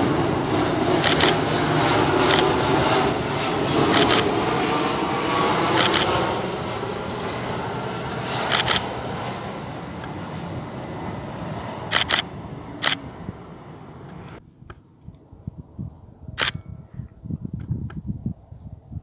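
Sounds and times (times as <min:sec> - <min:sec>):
jet engine rushing: 0:00.0 - 0:14.4
gusty wind rumble: 0:00.0 - 0:19.0
sharp clicks: 0:01.0 - 0:01.4, 0:02.3 - 0:02.5, 0:03.9 - 0:04.3, 0:05.7 - 0:06.1, 0:08.1 - 0:08.9, 0:11.6 - 0:13.2.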